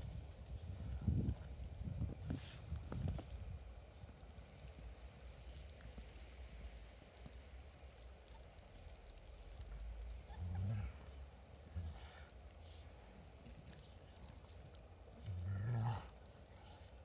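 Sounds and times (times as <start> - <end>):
low wind rumble: 0.0 - 17.0
dogs scuffling in snow: 10.1 - 17.0
low dog vocalisation: 10.2 - 12.2.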